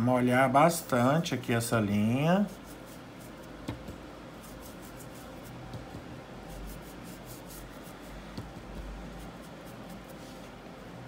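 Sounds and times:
stiff brush scrubbing: 2.3 - 3.6, 4.3 - 8.2, 8.8 - 10.6.

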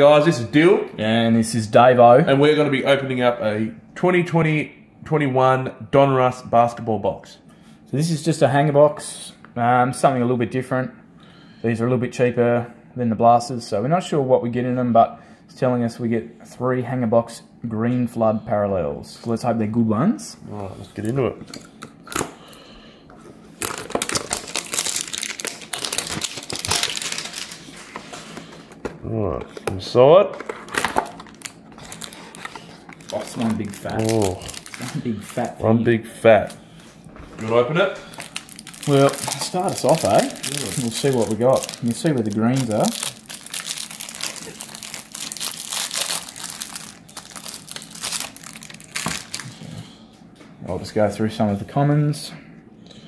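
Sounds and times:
cellophane crinkling and tearing: 23.6 - 28.5, 30.4 - 35.6, 37.4 - 49.7.

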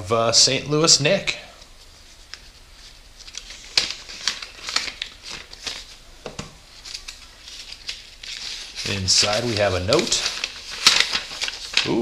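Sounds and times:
paper rustling: 1.8 - 6.0, 6.7 - 12.0
paper envelope tearing: 3.2 - 6.0, 6.8 - 12.0.

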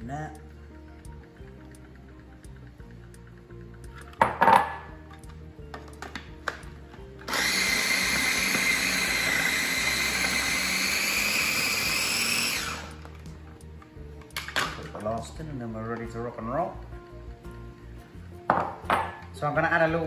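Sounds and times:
electric food chopper running: 7.2 - 13.1.

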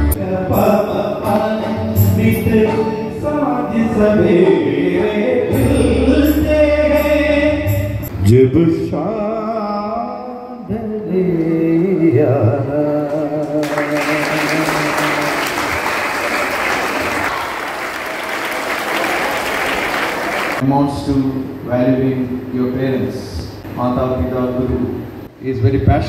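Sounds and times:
man singing through microphone: 0.0 - 15.7
audience applause: 13.5 - 20.6.

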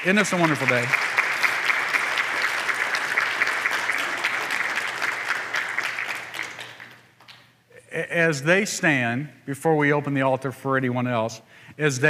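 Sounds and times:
crowd applauding: 0.0 - 7.4.

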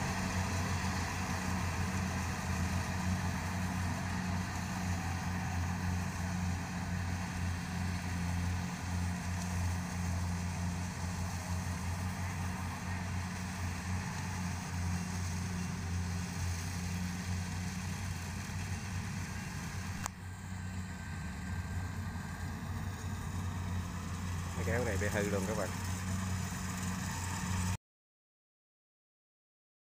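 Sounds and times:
diesel engine humming: 0.0 - 27.8.

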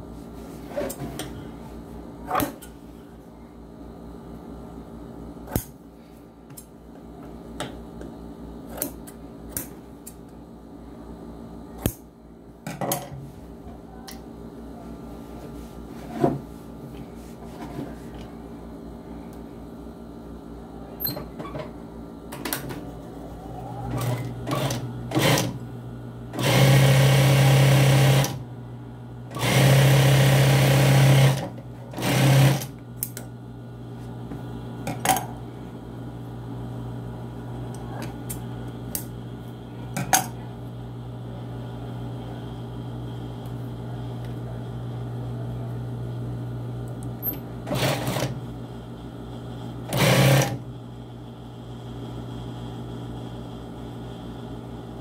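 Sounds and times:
steady low hum: 0.0 - 50.0, 50.6 - 55.0
sewing machine stitching: 23.9 - 25.6, 26.4 - 28.4, 29.3 - 32.7, 47.2 - 48.4, 49.9 - 50.6.

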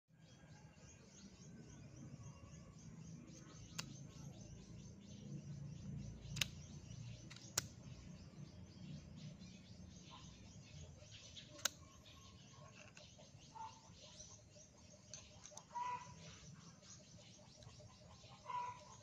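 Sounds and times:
faint bird chirping: 0.1 - 19.0
screwdriver joint metallic clicks: 3.4 - 4.0, 6.3 - 7.8, 11.5 - 11.8.

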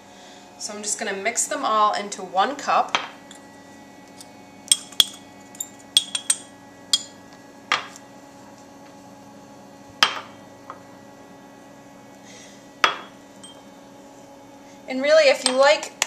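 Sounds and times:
ceramic ramekins clinking: 4.7 - 7.2, 12.9 - 13.6.

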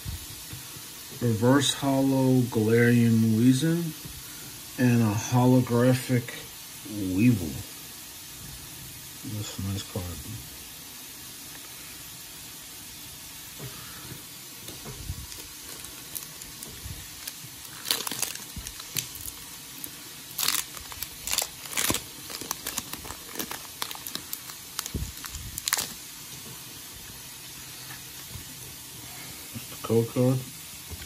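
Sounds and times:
foil wrapper crinkling and tearing: 14.6 - 26.2.

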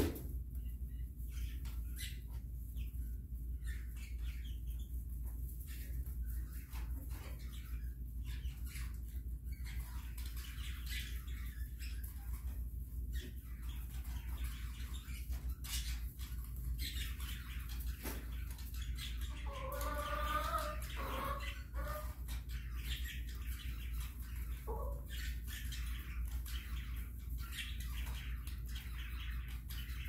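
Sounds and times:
chicken clucking: 19.4 - 22.1, 24.7 - 25.0
chickens scratching in wood shavings: 19.5 - 22.1.

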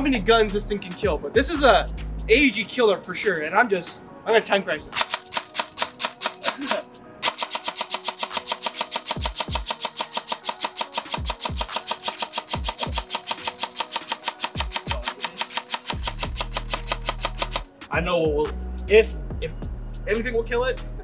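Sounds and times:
airsoft gun firing: 5.0 - 17.7.

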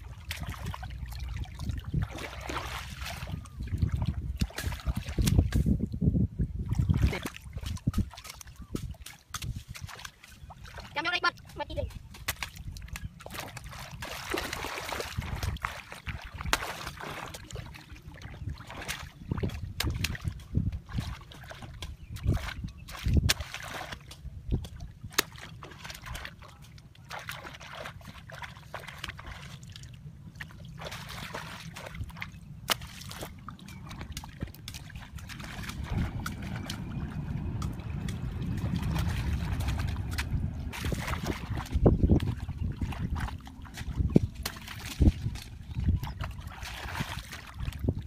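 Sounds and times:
water sloshing and splashing: 0.0 - 48.0
low rumble: 29.9 - 48.0.

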